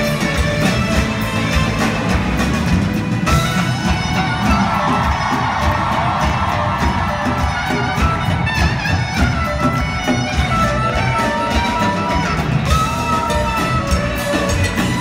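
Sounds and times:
drum kit: 0.0s - 15.0s
reedy woodwind solo: 3.2s - 15.0s.

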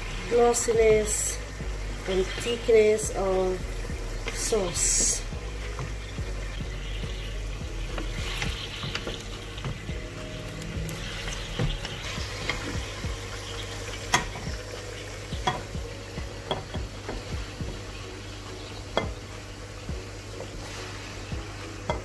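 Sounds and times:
stir-fry sizzling in a pan: 0.0s - 22.0s.

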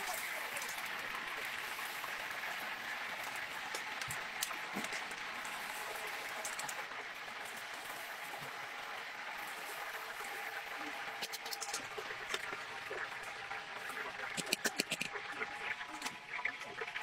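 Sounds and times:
hot oil crackling and sizzling: 0.0s - 17.0s.

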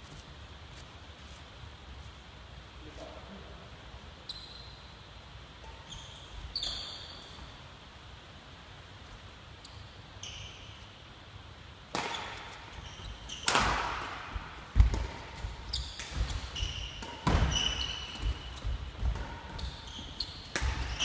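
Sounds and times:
shoes squeaking on wooden court: 4.2s - 4.9s, 5.6s - 7.6s, 9.6s - 10.9s, 12.0s - 21.0s
racket striking shuttlecock: 11.9s - 12.8s, 13.4s - 21.0s
footstep thuds: 14.3s - 16.6s.

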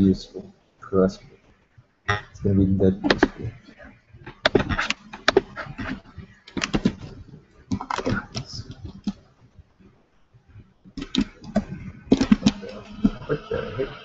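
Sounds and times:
mouse and keyboard clicks: 11.0s - 12.6s.

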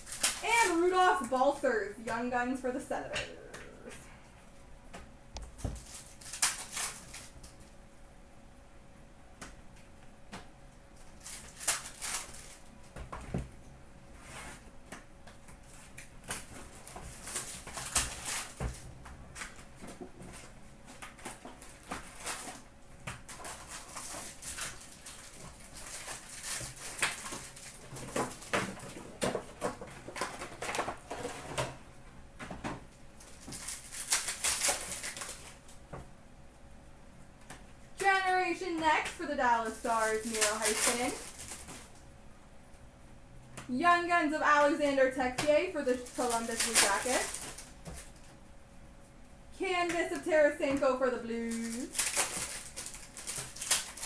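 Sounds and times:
card packs being torn open: 0.0s - 1.6s, 5.8s - 7.6s, 11.0s - 12.7s, 15.6s - 19.7s, 20.3s - 31.7s, 33.2s - 35.8s, 39.7s - 42.0s, 45.7s - 48.2s, 51.4s - 54.0s
wrappers crinkling: 0.0s - 2.4s, 5.6s - 7.7s, 10.9s - 13.0s, 15.6s - 31.6s, 33.2s - 35.8s, 38.0s - 42.0s, 44.4s - 48.3s, 50.0s - 54.0s.

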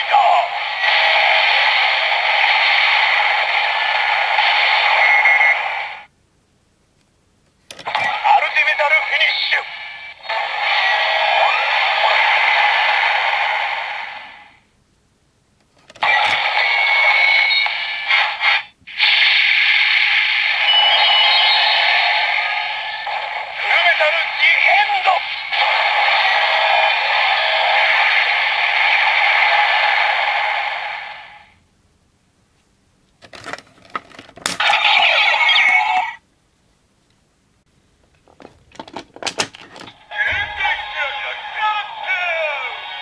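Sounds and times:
hissing electronic sound effect: 10.2s - 14.2s, 16.0s - 31.2s
tinny toy electronic sound effects: 39.8s - 43.0s.

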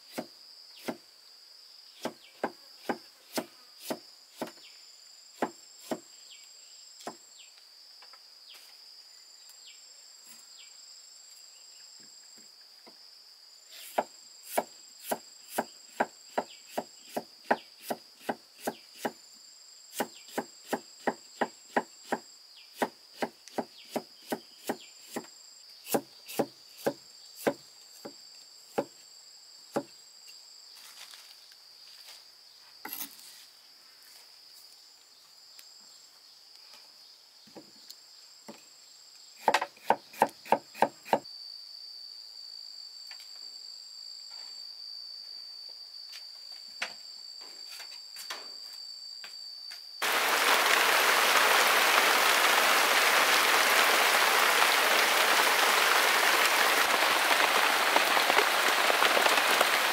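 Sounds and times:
insects droning: 0.0s - 59.9s
chopping wood: 2.0s - 4.6s, 22.8s - 25.3s, 25.9s - 28.9s, 39.4s - 41.2s.

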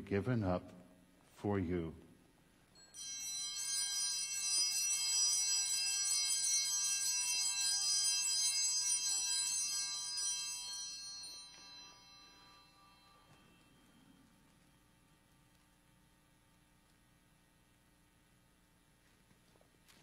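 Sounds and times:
small bells jangling: 2.8s - 14.5s.

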